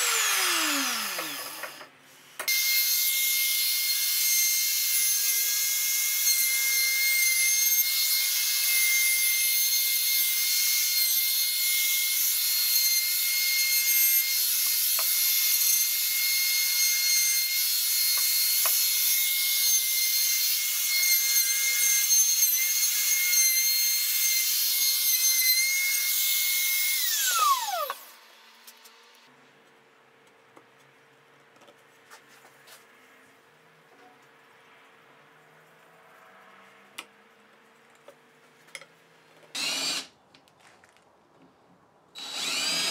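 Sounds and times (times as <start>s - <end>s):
router high whine: 0.0s - 1.9s.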